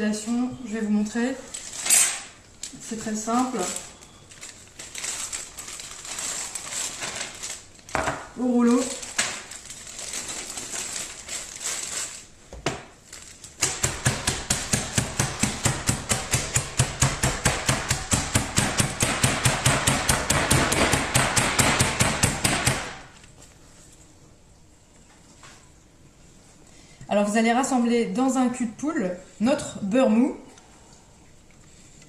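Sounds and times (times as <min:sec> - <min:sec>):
plastic bag rustling: 0:01.4 - 0:13.6.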